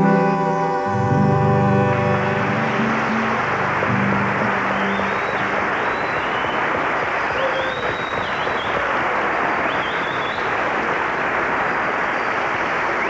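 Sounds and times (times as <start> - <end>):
audience applauding: 0.9 - 13.0
high whistles: 1.9 - 10.8, 11.6 - 13.0.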